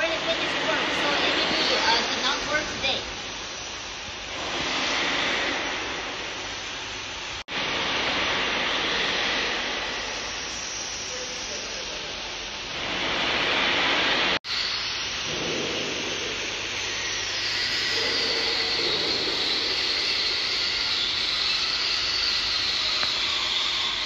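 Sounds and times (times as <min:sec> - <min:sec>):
steady rushing hiss: 0:00.0 - 0:24.0
faint high whistle: 0:16.8 - 0:24.0.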